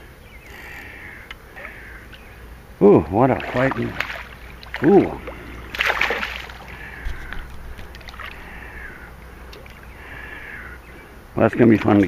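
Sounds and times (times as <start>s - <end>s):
eel splashing in water: 3.2s - 10.0s.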